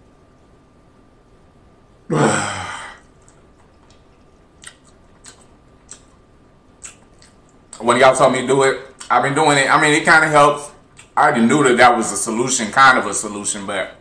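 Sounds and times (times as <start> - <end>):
man's loud voiced exhale: 2.1 - 3.0
faint mouth clicks: 3.2 - 6.2, 6.8 - 7.6.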